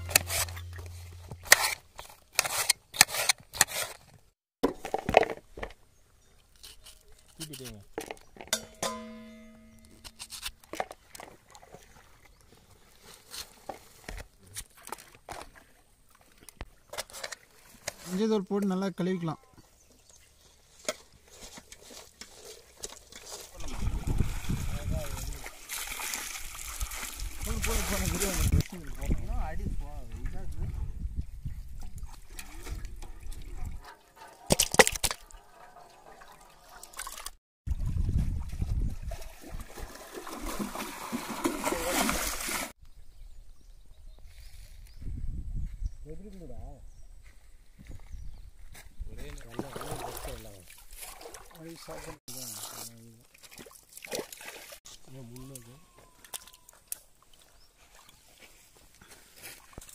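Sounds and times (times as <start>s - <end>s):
low rumble: 0.0s - 1.5s
water splashing and dripping: 21.8s - 29.2s, 31.7s - 42.8s, 49.4s - 52.2s, 53.2s - 58.6s.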